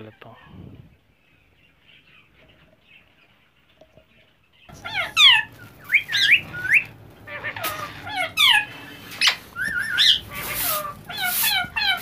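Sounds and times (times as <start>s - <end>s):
faint bird chirping: 0.0s - 12.0s
parakeets squawking: 4.7s - 12.0s.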